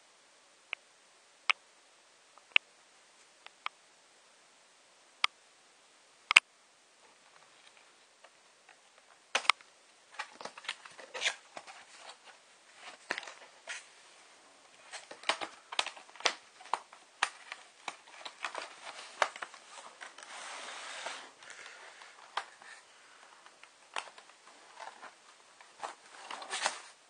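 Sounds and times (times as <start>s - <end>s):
cardboard packaging clicks and crinkles: 7.4s - 13.9s, 14.7s - 27.0s
rustling scrape: 17.6s - 23.2s, 24.4s - 27.0s.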